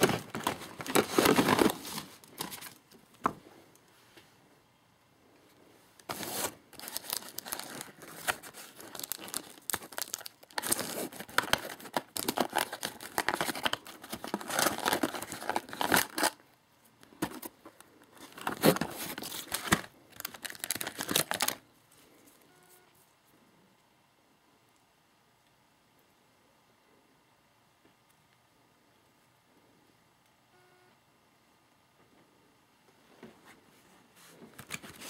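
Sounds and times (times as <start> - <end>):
packaging tearing and crinkling: 0.0 - 2.8, 6.0 - 16.4, 18.1 - 21.6, 34.6 - 35.0.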